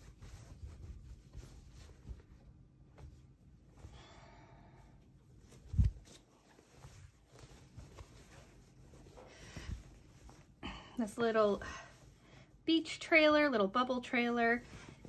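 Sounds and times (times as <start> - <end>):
fabric rustling: 0.0 - 4.1, 5.2 - 12.3, 14.1 - 15.0
soft breath: 3.8 - 5.1, 9.0 - 12.6.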